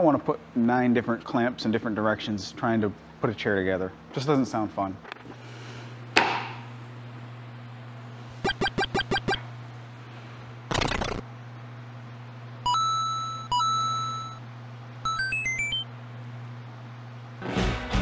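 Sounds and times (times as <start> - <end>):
steady low hum: 0.0 - 17.4
short pitched beeps: 12.7 - 14.4, 15.1 - 15.8.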